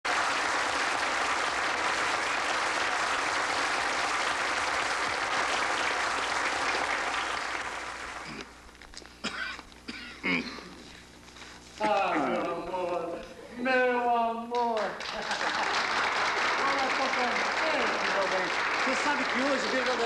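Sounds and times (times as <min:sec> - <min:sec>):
audience applauding: 0:00.0 - 0:08.5, 0:14.6 - 0:20.0.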